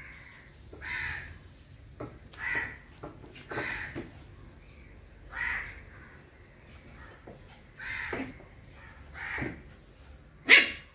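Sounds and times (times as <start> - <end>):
crow cawing: 0.0 - 1.4, 2.3 - 2.9, 3.5 - 4.1, 5.3 - 6.2, 7.8 - 9.6.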